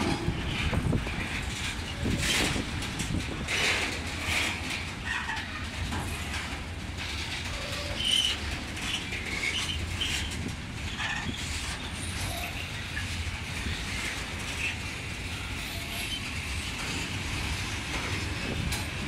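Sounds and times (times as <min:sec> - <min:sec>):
freight train wagons rolling: 0:00.0 - 0:19.0.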